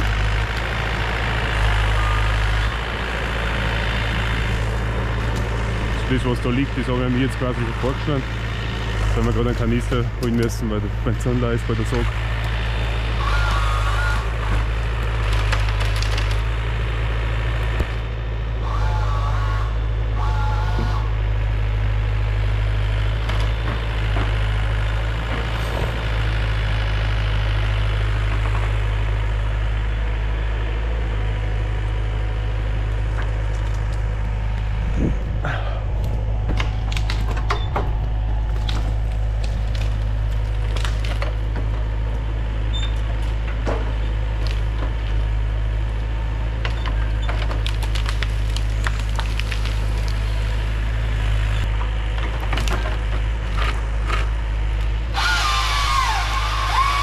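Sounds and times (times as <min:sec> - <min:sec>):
diesel engine running: 0:00.0 - 0:57.0
wood cracking and snapping: 0:04.4 - 0:06.2, 0:08.8 - 0:12.8, 0:13.4 - 0:17.0, 0:32.8 - 0:34.8, 0:35.4 - 0:57.0.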